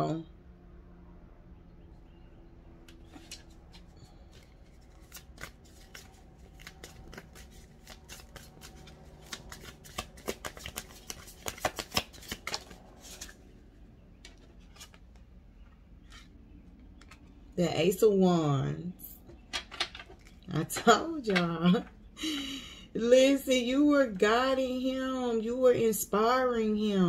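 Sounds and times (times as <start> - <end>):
cards being shuffled: 2.9 - 13.5, 14.2 - 15.3, 16.0 - 17.4.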